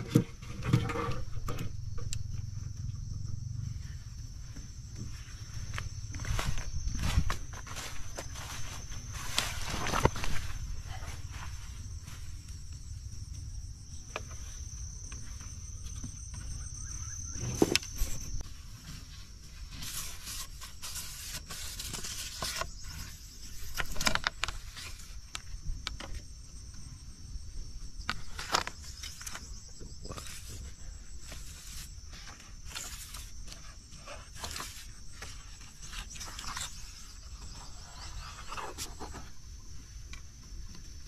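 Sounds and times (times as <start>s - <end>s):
rustles and knocks: 0.0s - 3.4s
insects droning: 0.0s - 41.0s.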